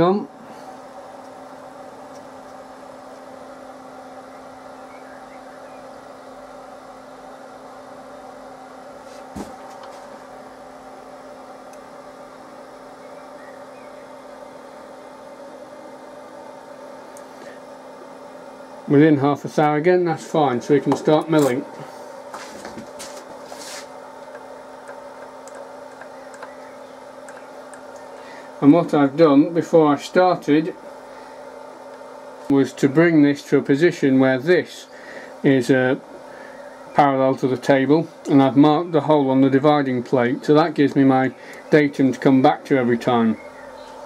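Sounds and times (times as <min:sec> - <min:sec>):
workshop machinery hum: 0:00.0 - 0:44.0
short rub: 0:21.8 - 0:24.0.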